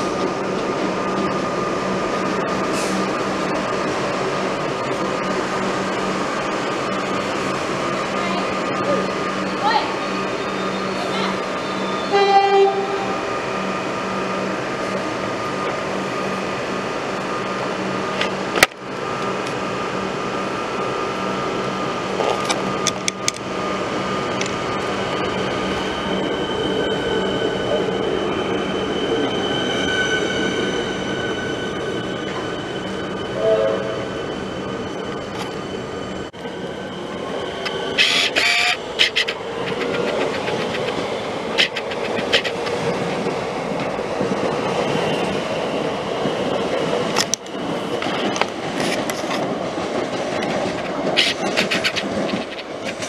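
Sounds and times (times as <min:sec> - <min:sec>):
electric train rumbling: 0:00.0 - 0:53.0
train wheels squealing: 0:10.2 - 0:12.2, 0:25.2 - 0:36.0, 0:36.8 - 0:42.8, 0:51.1 - 0:52.7.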